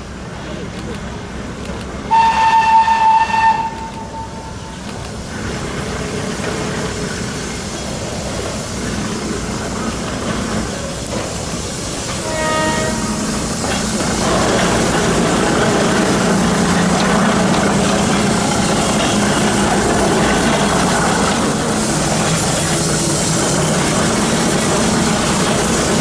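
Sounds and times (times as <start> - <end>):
steam locomotive running: 0.0 - 26.0
steam whistle blast: 2.1 - 4.8, 12.2 - 13.4.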